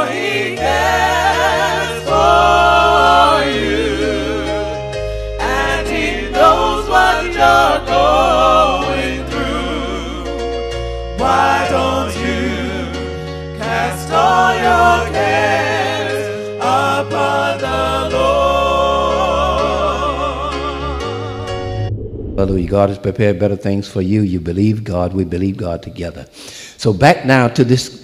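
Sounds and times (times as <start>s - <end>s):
steady bass notes: 20.9s - 23.2s.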